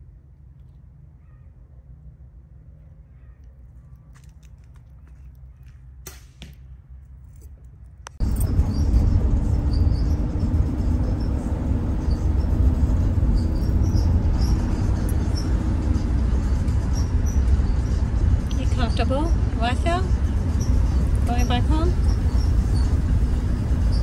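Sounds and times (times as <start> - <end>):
car road and wind noise: 7.1 - 24.0.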